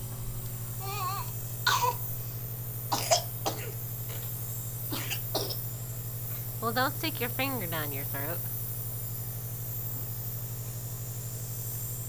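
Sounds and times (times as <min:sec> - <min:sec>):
steady low hum: 0:00.0 - 0:12.0
baby vocalisation: 0:00.8 - 0:01.3
baby coughing and gagging: 0:00.8 - 0:02.1, 0:02.9 - 0:03.8, 0:04.9 - 0:05.6.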